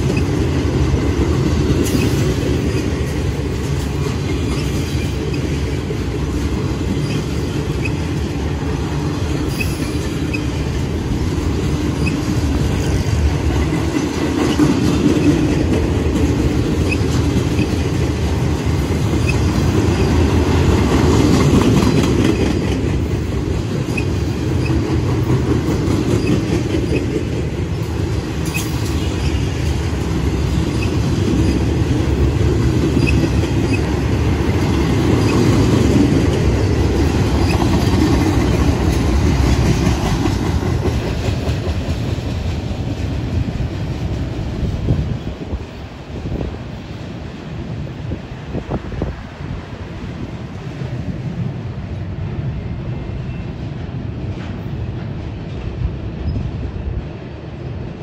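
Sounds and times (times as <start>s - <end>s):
train wheels rumbling on rails: 0.0s - 58.0s
faint rail clicks: 23.8s - 29.9s.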